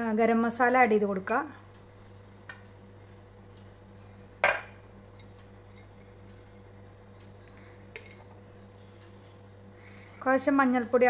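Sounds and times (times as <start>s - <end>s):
steady low hum: 0.0s - 11.0s
kitchenware knock: 4.4s - 4.8s.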